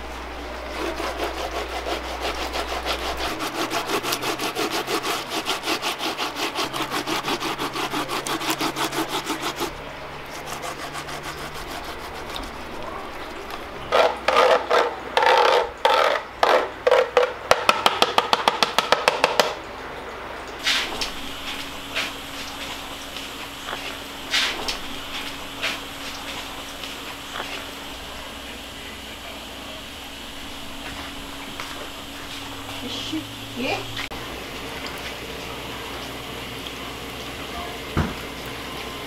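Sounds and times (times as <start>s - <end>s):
root grated on metal grater: 0.6s - 17.3s.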